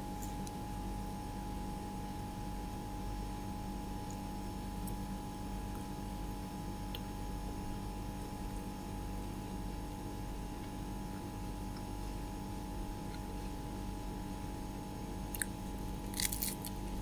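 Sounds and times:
steady tonal hum: 0:00.0 - 0:17.0.

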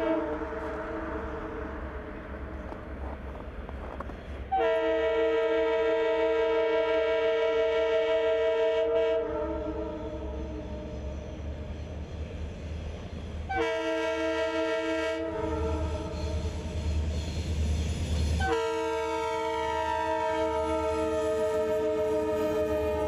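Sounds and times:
locomotive air horn chord: 0:00.0 - 0:02.1, 0:04.5 - 0:10.9, 0:13.5 - 0:16.5, 0:18.4 - 0:23.0
locomotive engine rumble: 0:00.0 - 0:05.4, 0:09.6 - 0:23.0.

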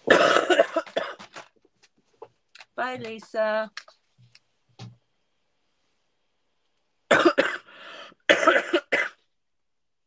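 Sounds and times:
woman coughing: 0:00.0 - 0:01.2, 0:07.1 - 0:07.7, 0:08.3 - 0:09.2
breath: 0:07.6 - 0:08.2.

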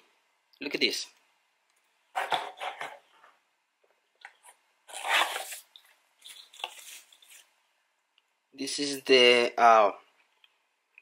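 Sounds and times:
cardboard and paper rustling: 0:04.9 - 0:07.5.

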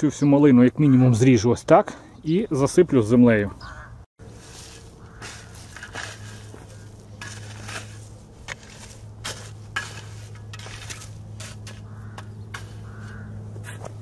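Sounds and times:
shovel scraping stony soil: 0:04.2 - 0:14.0.

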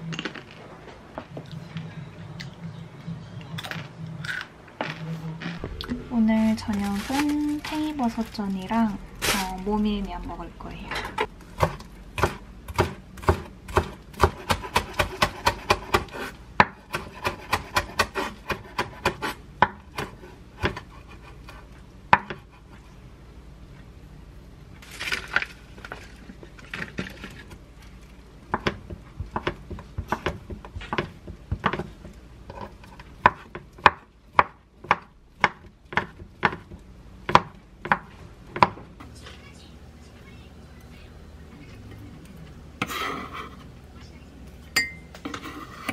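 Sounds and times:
knife chopping on wooden board: 0:11.6 - 0:20.9, 0:28.5 - 0:38.8
knife scraping board: 0:42.8 - 0:43.7, 0:45.2 - 0:45.9.

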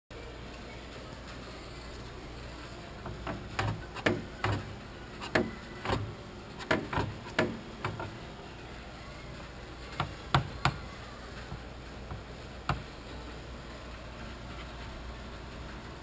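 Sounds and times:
fiberglass panel clicking and knocking: 0:03.0 - 0:08.2, 0:09.9 - 0:10.8, 0:11.5 - 0:12.9.

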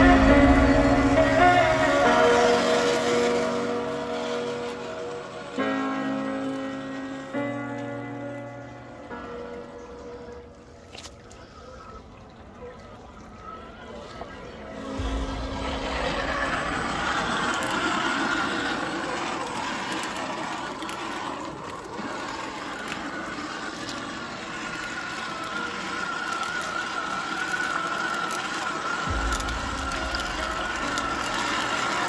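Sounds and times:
electric motor whining: 0:00.0 - 0:05.7, 0:14.9 - 0:32.0.

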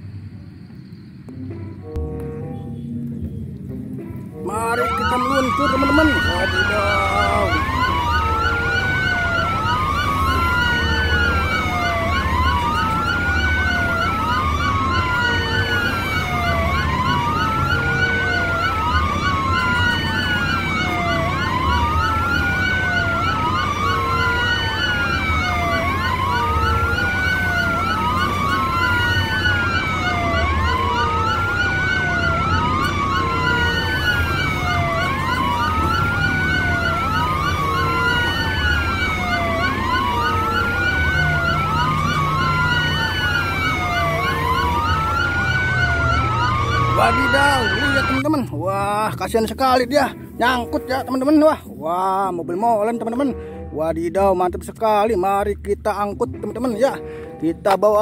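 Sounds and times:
electronic siren wailing: 0:04.4 - 0:51.6.

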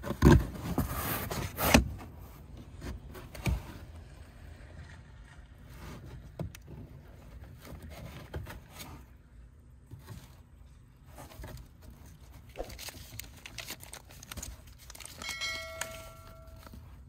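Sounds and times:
paper rustling and crinkling: 0:09.9 - 0:17.0.

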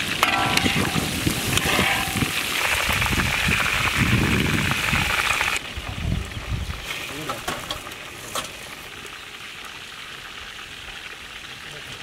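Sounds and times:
chicken deep-frying in hot oil: 0:00.0 - 0:12.0.

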